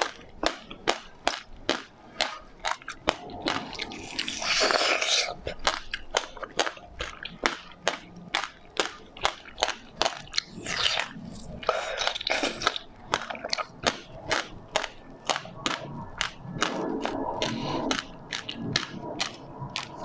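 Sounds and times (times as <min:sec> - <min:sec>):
chewing soft bun: 0:00.0 - 0:20.0
seeds crunching: 0:00.0 - 0:20.0.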